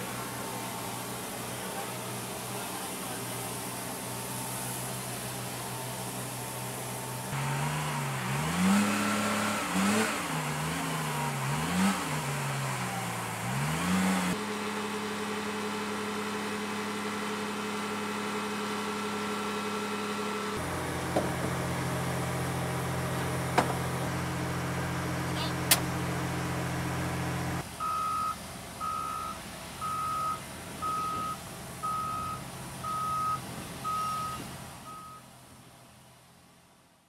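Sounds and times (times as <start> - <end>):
heavy diesel engine revving: 0.0 - 27.7.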